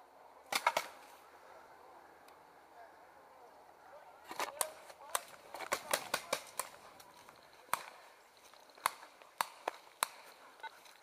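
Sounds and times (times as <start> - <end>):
paintball markers firing: 4.3 - 6.8, 8.8 - 10.3.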